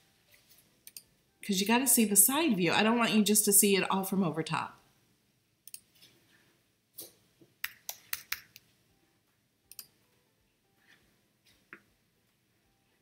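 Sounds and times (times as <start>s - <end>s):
sharp clicks and light taps: 7.0s - 8.7s.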